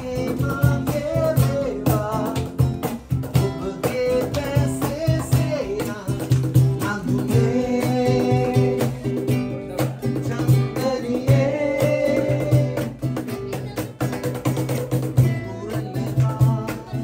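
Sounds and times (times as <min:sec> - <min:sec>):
men singing loudly: 0:00.0 - 0:02.4, 0:06.8 - 0:09.3, 0:10.2 - 0:13.0
acoustic guitar strumming: 0:00.0 - 0:17.0
cajon slapped in a beat: 0:00.0 - 0:17.0.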